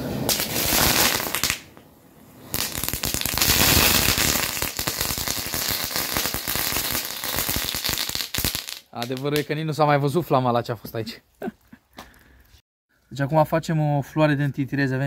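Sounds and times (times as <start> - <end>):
fireworks crackling: 0.0 - 9.6.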